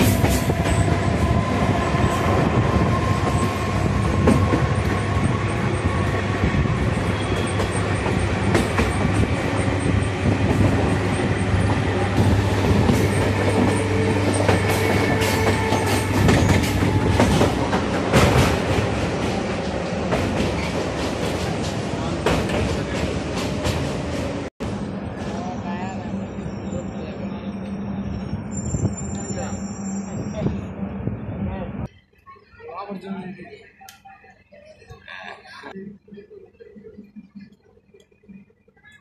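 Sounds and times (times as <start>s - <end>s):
train wheels rumbling on rails: 0.0s - 31.8s
clickety-clack over rail joints: 7.2s - 24.5s.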